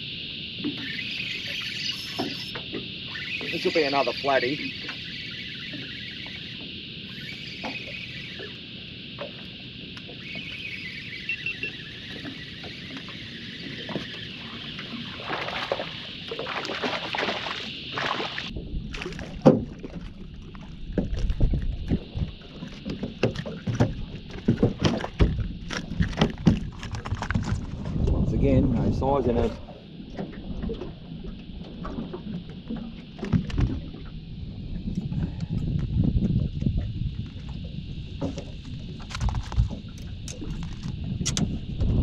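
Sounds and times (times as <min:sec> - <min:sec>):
knocks and thumps on boat deck: 0:18.6 - 0:20.1, 0:20.9 - 0:28.2.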